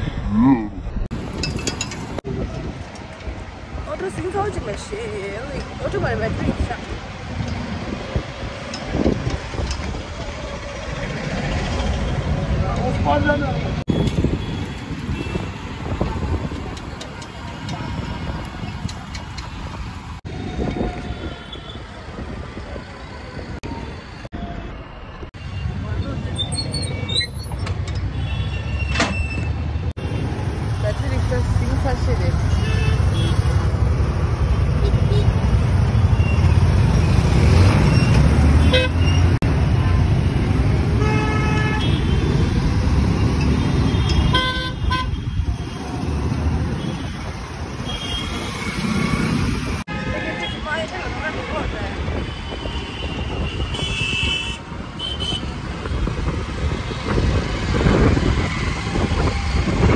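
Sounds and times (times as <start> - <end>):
road traffic rumble: 0.0 - 59.9
wind: 0.0 - 59.9
vehicle horns honking: 38.6 - 39.4, 41.0 - 42.4, 43.7 - 45.4, 52.3 - 55.5.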